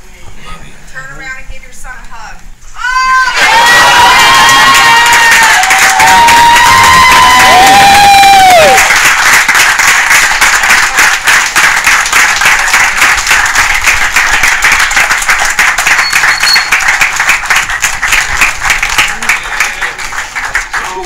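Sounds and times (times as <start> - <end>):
high held cry from onlookers: 2.8 - 8.9
crowd applauding: 3.3 - 21.0.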